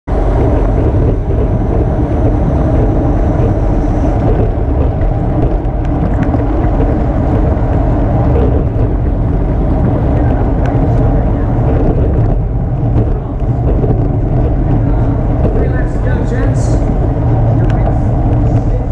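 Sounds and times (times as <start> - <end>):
wind rushing over microphone: 0.1 - 18.9.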